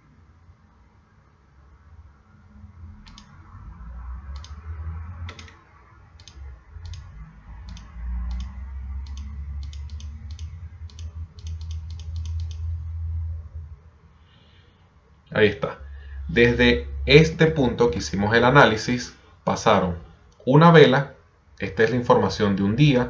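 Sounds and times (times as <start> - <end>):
computer mouse clicking: 3.0 - 3.4, 4.3 - 4.6, 5.3 - 5.6, 6.2 - 12.8.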